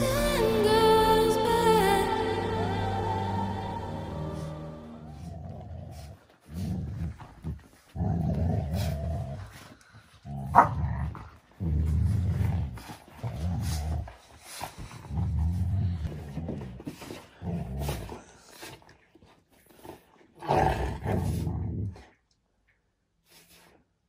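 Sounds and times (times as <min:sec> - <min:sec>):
dogs growling in play: 0:04.2 - 0:22.3.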